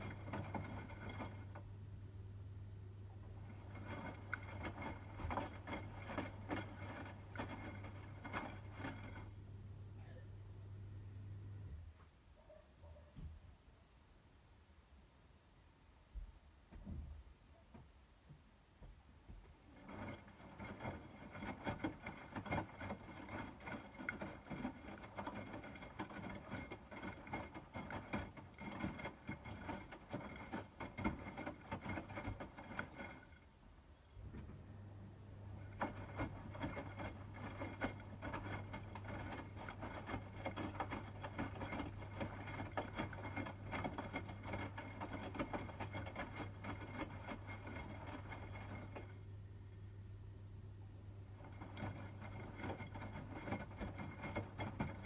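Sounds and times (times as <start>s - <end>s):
washing machine water sloshing: 0.0s - 1.7s, 3.2s - 9.4s, 19.3s - 34.6s, 35.5s - 49.2s, 51.2s - 55.0s
washing machine hum: 0.0s - 55.0s.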